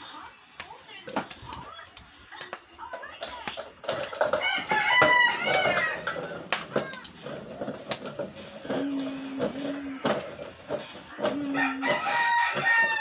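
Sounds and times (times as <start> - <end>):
rooster crowing: 4.4 - 6.2, 11.4 - 13.0.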